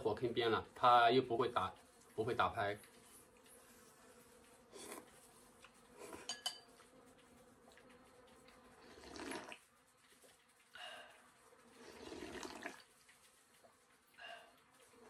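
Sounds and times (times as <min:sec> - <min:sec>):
slurping broth: 0:04.7 - 0:05.2, 0:08.8 - 0:09.6, 0:11.8 - 0:12.9
chopsticks clinking on bowl: 0:06.1 - 0:06.8.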